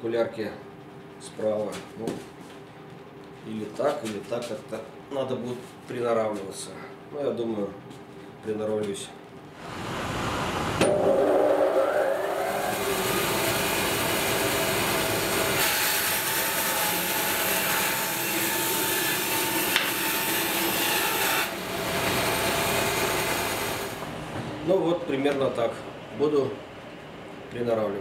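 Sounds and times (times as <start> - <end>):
band saw motor running: 9.6 - 24.1
saw rasping through wood: 12.4 - 24.0.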